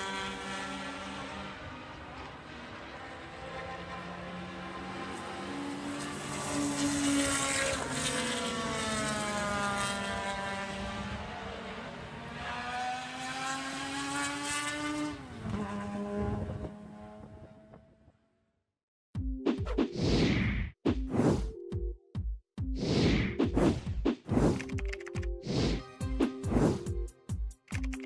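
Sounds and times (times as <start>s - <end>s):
race car engines passing: 0.0s - 18.2s.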